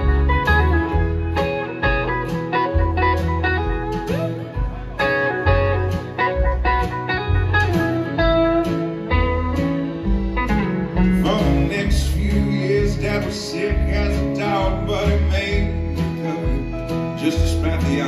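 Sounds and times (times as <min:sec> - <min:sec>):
bass guitar: 0:00.0 - 0:18.0
guitars: 0:00.0 - 0:18.0.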